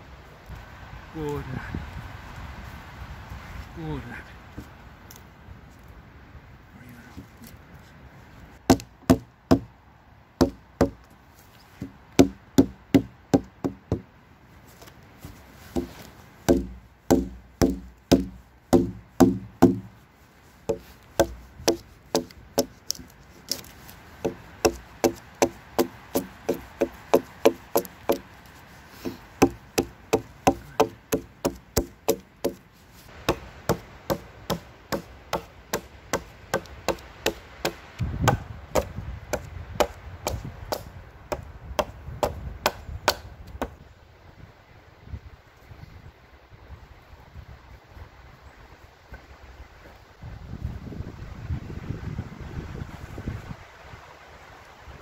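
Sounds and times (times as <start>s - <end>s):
hatchet chopping wood: 8.7s - 9.7s, 10.4s - 11.0s, 11.8s - 14.1s, 15.8s - 19.9s, 20.7s - 32.6s, 33.2s - 43.8s.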